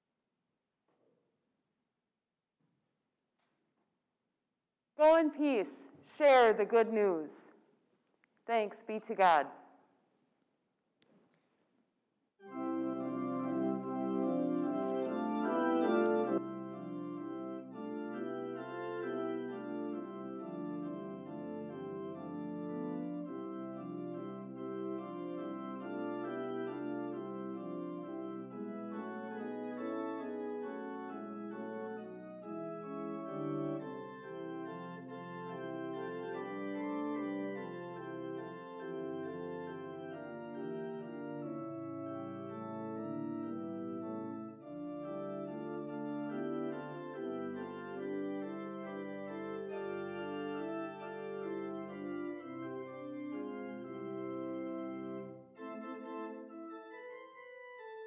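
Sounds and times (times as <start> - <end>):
church organ chords: 12.4 - 58.0.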